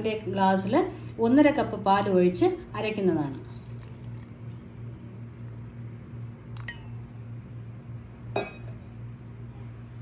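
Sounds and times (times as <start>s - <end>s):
steady low hum: 0.0s - 10.0s
milk pouring wet squish: 3.2s - 8.3s.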